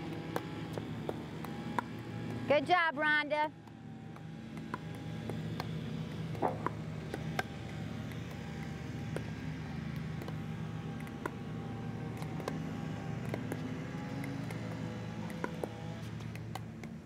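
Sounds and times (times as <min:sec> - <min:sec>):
low engine-like hum: 0:00.0 - 0:17.0
paddles hitting ball: 0:03.6 - 0:17.0.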